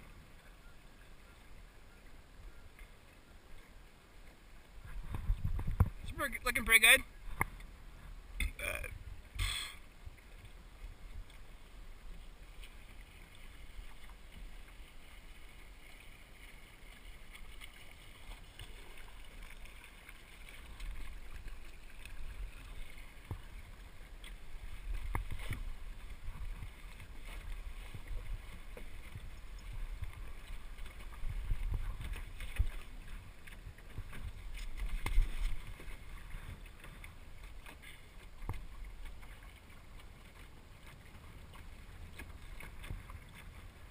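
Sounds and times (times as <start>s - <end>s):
water washing against hull: 0.0s - 43.9s
wind rumbling on microphone: 4.6s - 6.3s, 20.6s - 37.6s.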